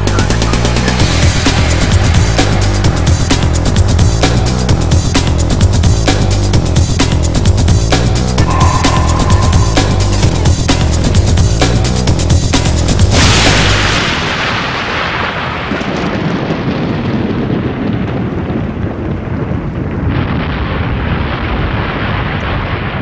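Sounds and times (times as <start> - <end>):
beat-driven music: 0.0 - 13.2
noisy rumble: 0.0 - 15.2
loud crash: 8.4 - 16.2.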